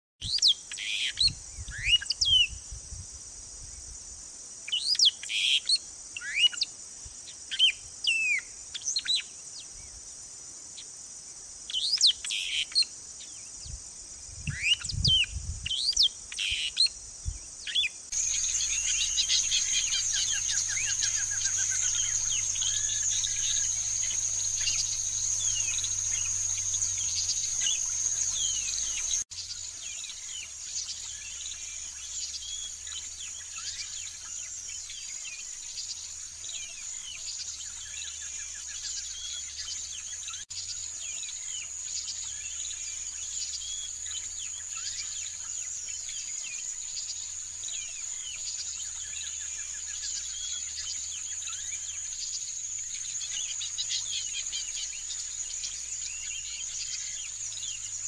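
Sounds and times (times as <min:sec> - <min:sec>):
small bird chirps: 0:00.2 - 0:02.7, 0:04.7 - 0:09.8, 0:11.7 - 0:13.8, 0:14.4 - 0:58.0
songbird whistling phrases: 0:17.7 - 0:29.2
high-pitched insect drone: 0:18.1 - 0:58.0.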